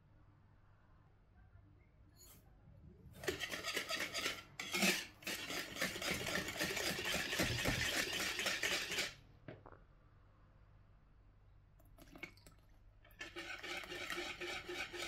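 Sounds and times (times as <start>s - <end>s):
wire whisk beating batter: 3.2s - 9.2s, 13.1s - 15.0s.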